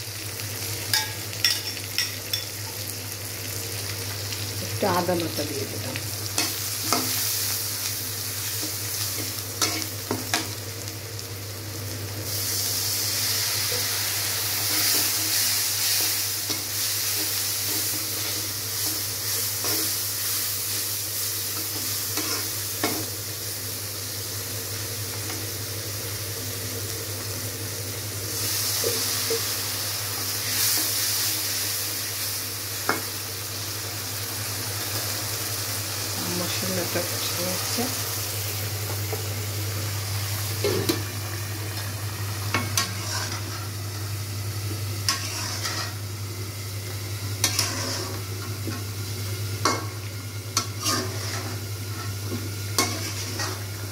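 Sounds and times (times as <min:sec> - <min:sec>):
onions sizzling in oil: 0:00.0 - 0:53.9
spatula scraping and knocking pan: 0:45.1 - 0:46.0, 0:47.4 - 0:48.8, 0:50.6 - 0:53.7.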